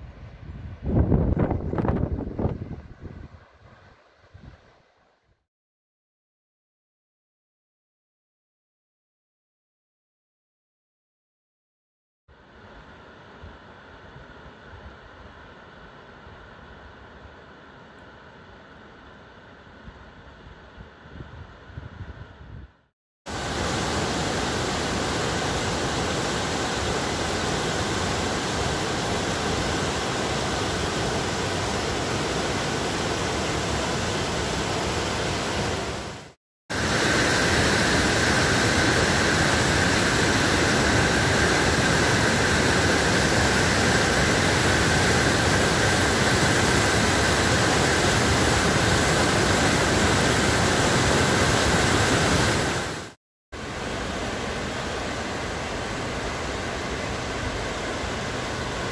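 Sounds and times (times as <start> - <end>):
water rushing over a weir: 23.3 - 58.9
whitewater rapids rushing: 23.3 - 58.9.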